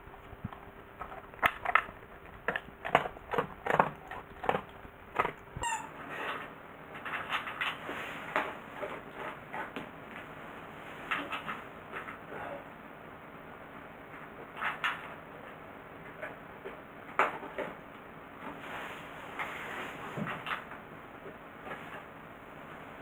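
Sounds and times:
dog chewing dry kibble: 0.0s - 5.6s.

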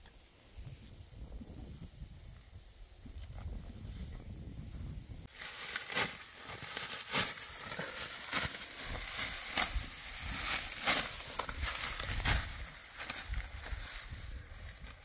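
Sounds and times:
dry wheat stalks crunching: 5.3s - 15.0s.

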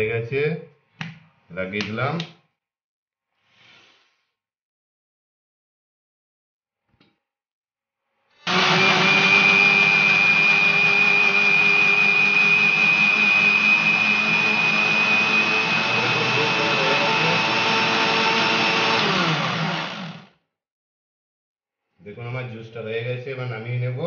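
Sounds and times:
mixer grinder motor whine: 8.4s - 20.4s.

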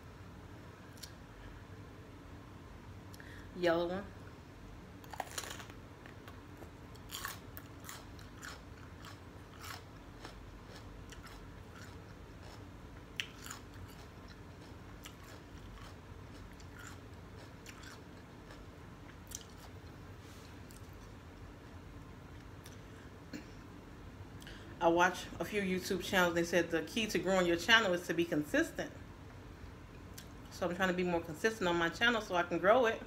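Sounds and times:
bell pepper crunching: 5.0s - 20.0s.

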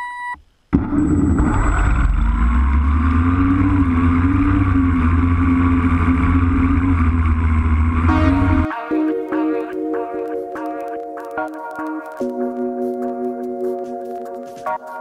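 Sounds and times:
drone motors and propellers: 0.8s - 8.7s.

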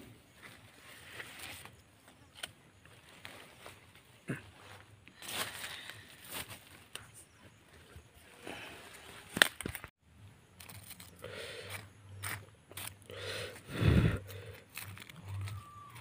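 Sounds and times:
charred leaves crackling: 10.4s - 16.0s.

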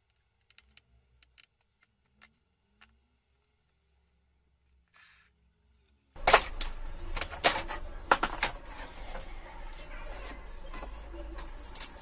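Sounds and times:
plastic and metal parts clicking: 0.0s - 4.2s.

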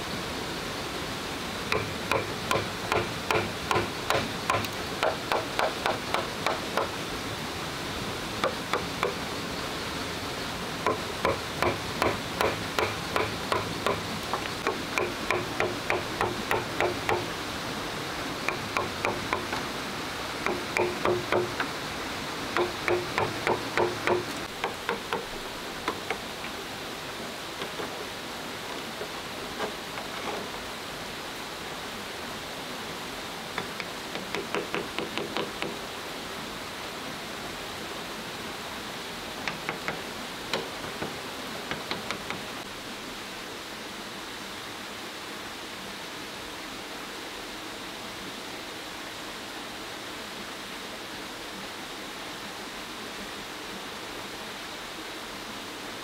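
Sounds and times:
stream rushing: 0.0s - 56.0s
mallet striking machete into bamboo: 1.7s - 6.9s, 10.8s - 17.3s, 18.5s - 19.6s, 20.4s - 21.6s, 22.6s - 25.3s.

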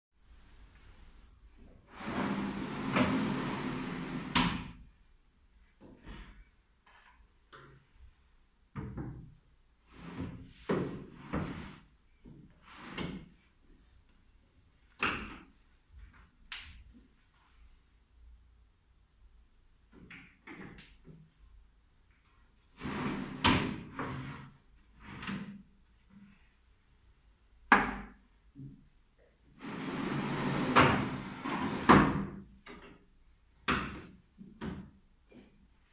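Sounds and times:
table sliding open on runners: 1.9s - 4.8s, 9.9s - 11.9s, 12.6s - 13.3s, 22.7s - 25.6s, 29.6s - 32.4s
wooden clunks and knocks: 8.8s - 9.3s.

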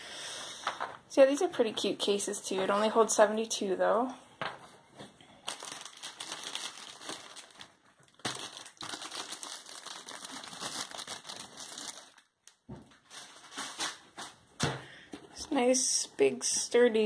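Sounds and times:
plastic wrapping crinkling: 5.4s - 14.4s.

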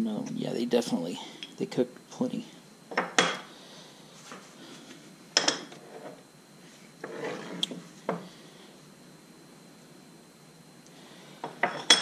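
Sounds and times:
metal scraping on wood: 7.0s - 7.7s.

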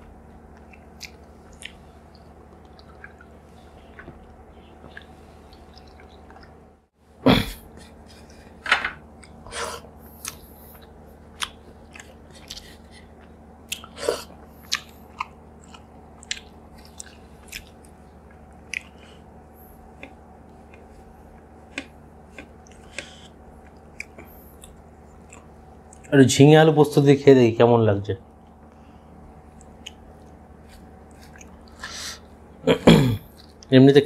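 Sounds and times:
person chewing with wet smacks: 0.2s - 6.6s, 10.2s - 26.1s, 28.3s - 32.3s, 33.3s - 33.7s.

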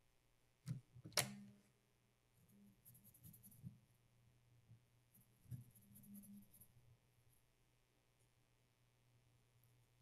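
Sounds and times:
cotton swab scratchy rubbing: 2.4s - 3.8s, 5.1s - 6.8s.

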